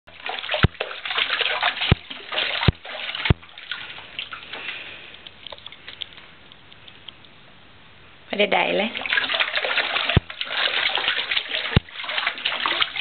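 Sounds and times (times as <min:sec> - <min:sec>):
dull thumps: 0:00.1 - 0:04.7
bathwater splashing: 0:00.1 - 0:07.0, 0:08.6 - 0:13.0
water trickling and dripping: 0:00.1 - 0:07.5, 0:08.3 - 0:13.0.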